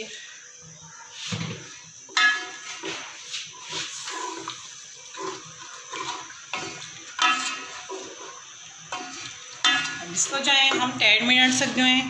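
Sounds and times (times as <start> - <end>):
spatula stirring watery sauce: 2.5 - 11.8.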